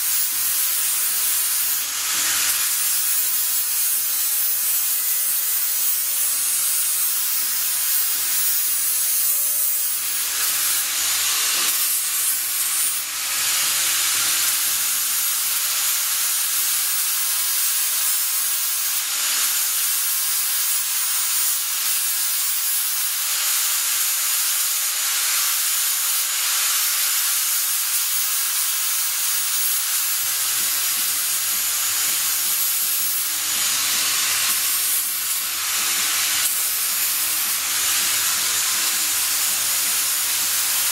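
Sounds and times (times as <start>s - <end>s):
hand grinder grinding steel: 0.0s - 40.9s.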